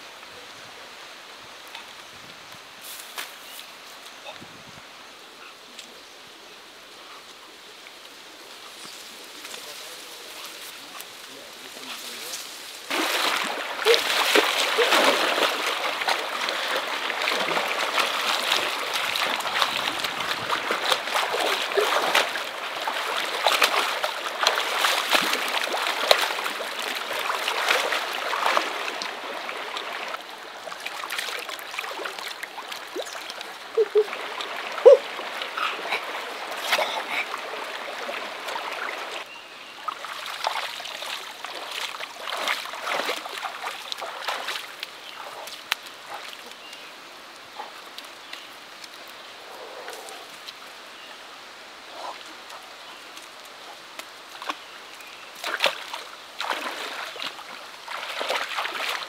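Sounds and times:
stream flowing: 0:00.0 - 0:59.0
person splashing through water: 0:12.8 - 0:39.2, 0:39.8 - 0:46.4, 0:55.4 - 0:59.0.

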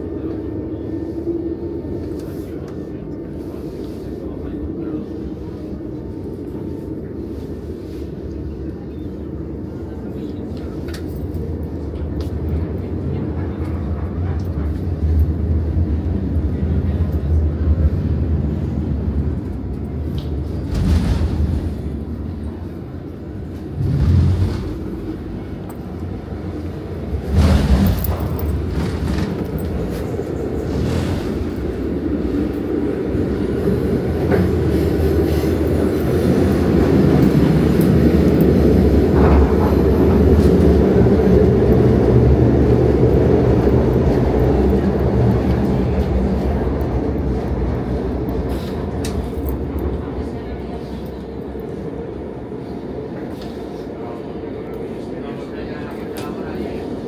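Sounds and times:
train rumble inside carriage: 0:00.0 - 0:57.0.

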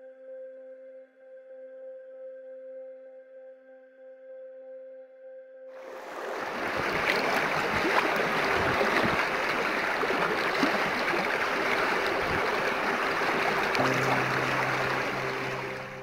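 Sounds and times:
stream splashing over stones: 0:05.9 - 0:16.0
low held music note: 0:13.8 - 0:16.0.

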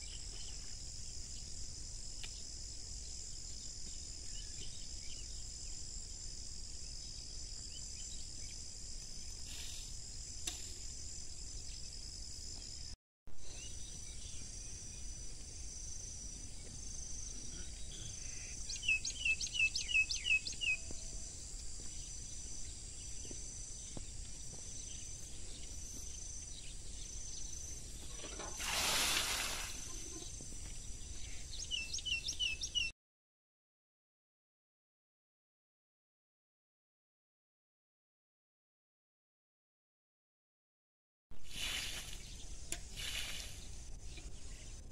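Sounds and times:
high-pitched insect chorus: 0:00.0 - 0:32.9, 0:41.5 - 0:44.9
bird chirping: 0:16.5 - 0:28.5, 0:29.8 - 0:32.9.

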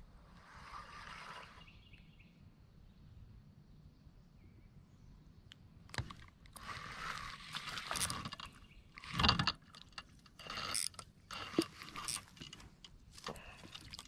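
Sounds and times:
fishing reel whirring and clicking: 0:06.6 - 0:12.6.

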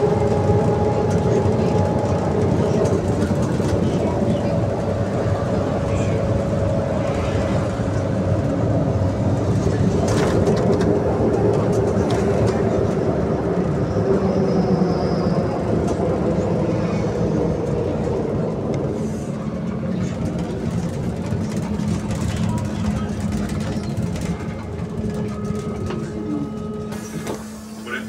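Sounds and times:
trolleybus rumble and hum: 0:00.0 - 0:28.0
rattles and knocks of bus body: 0:08.7 - 0:13.2, 0:19.6 - 0:27.5.

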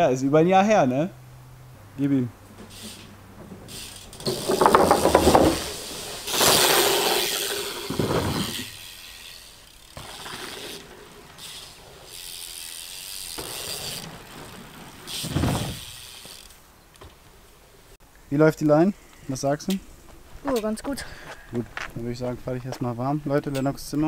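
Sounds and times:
bike rattling: 0:02.0 - 0:17.9
bike tyres rolling on dirt: 0:02.0 - 0:18.0.

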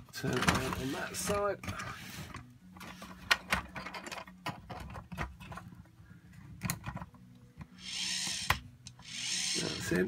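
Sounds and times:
plastic parts clicking and knocking: 0:00.0 - 0:05.9, 0:06.5 - 0:09.0
plastic parts scraping: 0:00.1 - 0:05.8.

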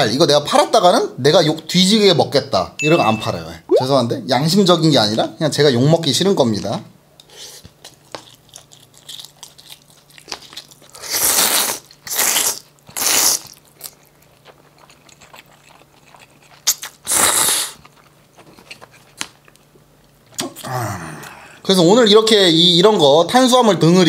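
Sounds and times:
chewing and mouth clicks: 0:07.6 - 0:20.6
man slurping noodles: 0:17.1 - 0:17.8.

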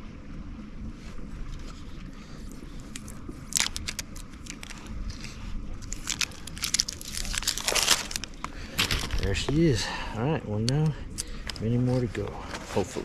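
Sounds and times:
wind rumble on microphone: 0:00.0 - 0:13.0
plastic wrap tearing and crinkling: 0:03.5 - 0:04.8, 0:05.8 - 0:09.4.

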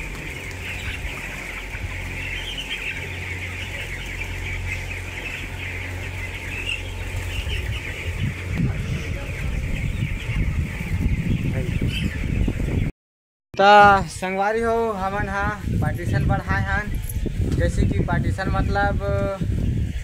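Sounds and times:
chicks peeping and cheeping: 0:00.0 - 0:12.9, 0:13.7 - 0:20.0
low hum: 0:00.0 - 0:12.9.

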